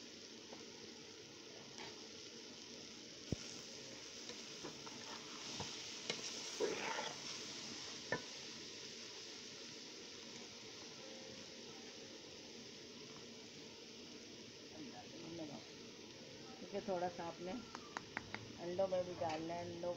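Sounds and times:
cabbage sizzling in oil: 0.0 - 19.9
spoon scraping pot: 4.8 - 7.2.

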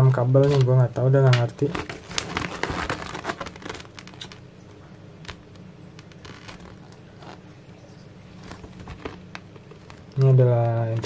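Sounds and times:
paper rustling and crinkling: 0.4 - 0.7, 1.3 - 4.4, 5.3 - 7.4, 8.3 - 11.0.

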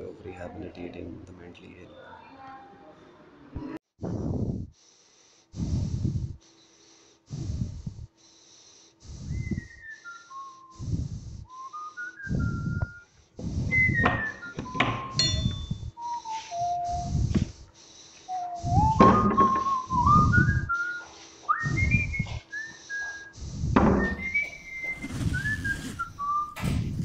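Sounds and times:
high whistled melody: 11.5 - 17.3, 18.3 - 23.3, 24.0 - 26.8.

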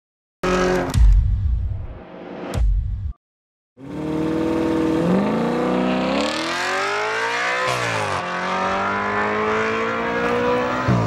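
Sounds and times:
car engine accelerating: 3.8 - 11.0.

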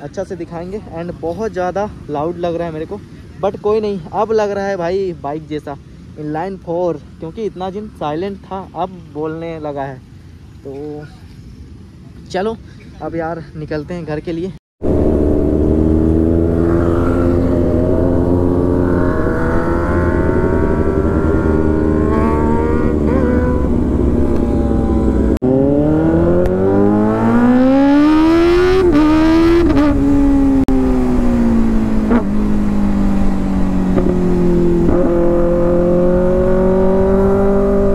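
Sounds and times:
loud motorcycle engine revving: 14.8 - 37.9.

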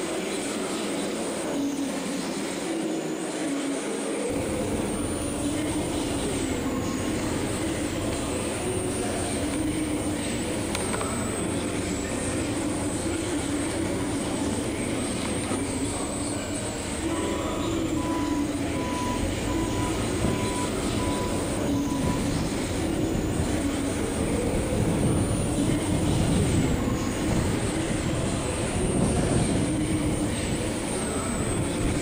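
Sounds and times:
vehicle rumble: 4.3 - 32.0.

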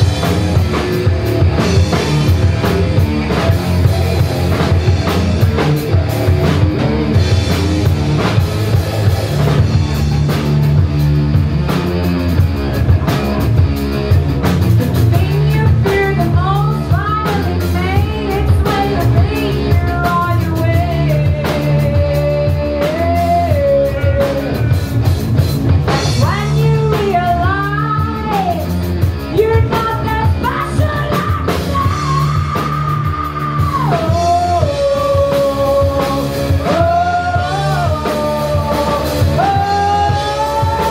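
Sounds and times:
live rock band playing: 0.0 - 40.9
person singing long notes: 15.2 - 24.8, 30.2 - 40.9.

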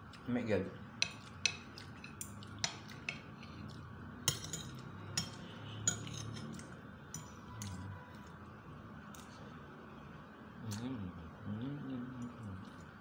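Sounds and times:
cutlery clinking on ceramic plate: 4.2 - 7.8.

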